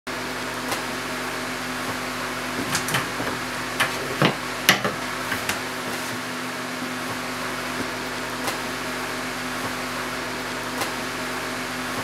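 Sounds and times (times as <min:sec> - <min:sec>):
steady room hum: 0:00.2 - 0:12.0
wooden stick knocking on board: 0:03.8 - 0:05.6.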